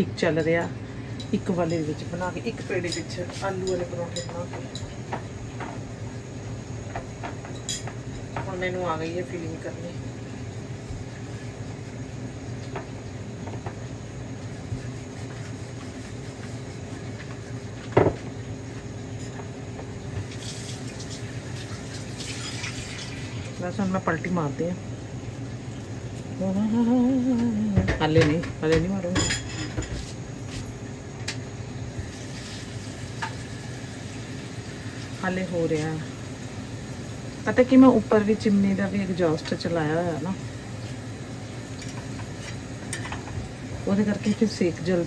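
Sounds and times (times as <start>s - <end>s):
exhaust fan humming: 0.0s - 45.0s
flatbread hissing on hot griddle: 20.3s - 23.6s, 32.0s - 35.2s.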